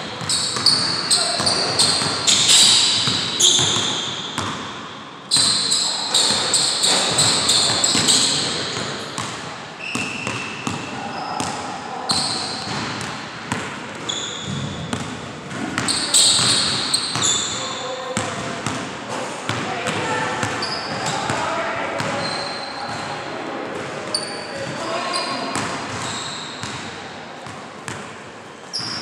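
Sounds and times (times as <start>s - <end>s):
sneakers squeaking: 0.0s - 18.8s, 19.5s - 29.0s.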